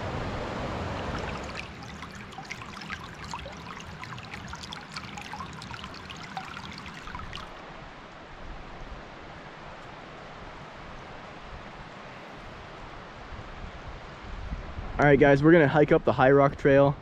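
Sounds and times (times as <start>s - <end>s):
creek rapids rushing: 0.0s - 7.5s
water drips and gurgles: 0.8s - 7.6s
water trickling over stones: 0.9s - 7.6s.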